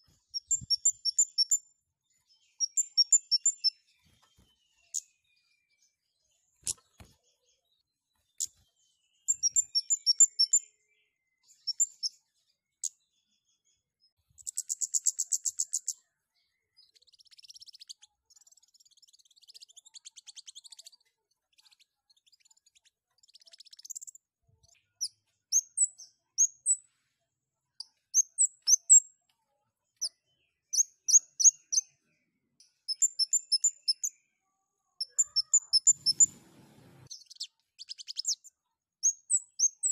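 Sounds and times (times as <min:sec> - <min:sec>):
bird singing high chips and trills: 0:00.0 - 0:01.7, 0:02.4 - 0:05.4, 0:09.2 - 0:10.7, 0:11.5 - 0:12.2, 0:14.4 - 0:16.0, 0:16.6 - 0:24.2, 0:28.2 - 0:29.1, 0:32.8 - 0:34.2, 0:35.0 - 0:36.4, 0:37.0 - 0:39.9.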